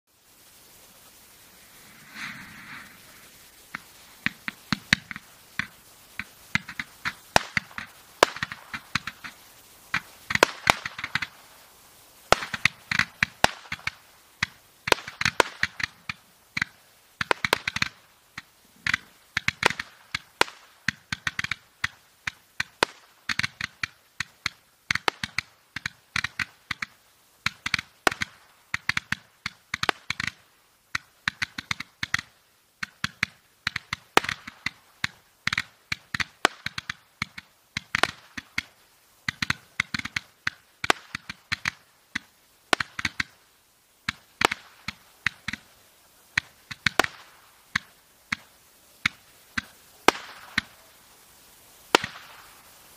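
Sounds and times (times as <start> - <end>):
hiss of burning stars: 0.1 - 52.9
roman candle pops: 2.1 - 11.4, 12.3 - 43.4, 44.0 - 45.7, 46.3 - 50.9, 51.9 - 52.7.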